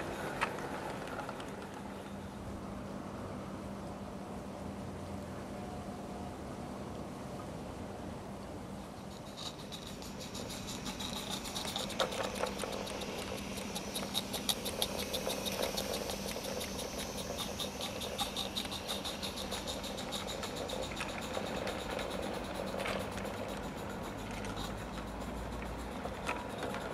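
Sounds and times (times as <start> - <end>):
soft steam hiss: 0.0 - 26.9
steam locomotive rapid ticking: 8.9 - 26.9.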